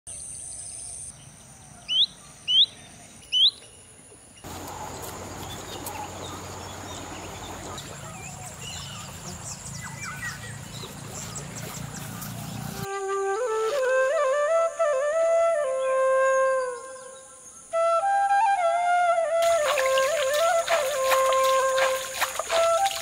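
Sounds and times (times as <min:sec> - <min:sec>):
small bird chirps: 0:01.8 - 0:03.8
bird whistling: 0:03.3 - 0:03.6.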